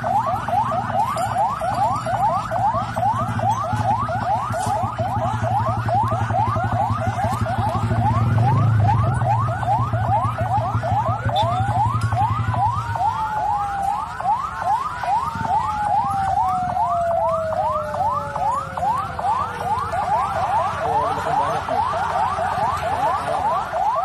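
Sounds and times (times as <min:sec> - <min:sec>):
electronic siren yelping: 0:00.0 - 0:24.0.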